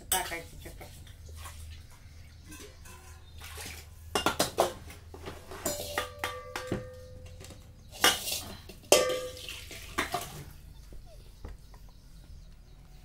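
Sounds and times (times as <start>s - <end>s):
steel cookware clanking: 2.4s - 3.4s, 5.4s - 10.4s.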